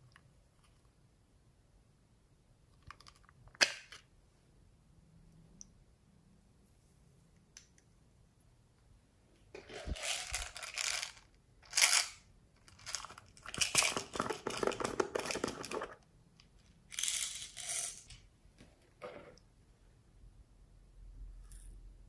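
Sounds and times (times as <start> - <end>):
plastic jars crinkling and crackling: 9.5 - 16.0.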